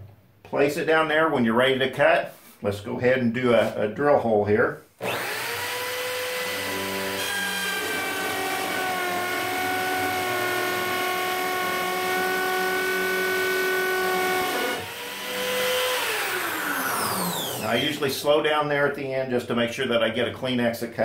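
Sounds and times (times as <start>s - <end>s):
electric drill boring into wood: 5.0s - 18.2s.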